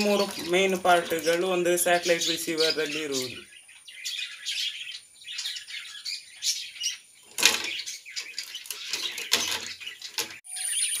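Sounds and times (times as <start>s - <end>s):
birds chirping: 0.0s - 11.0s
circuit boards clattering: 7.3s - 10.4s.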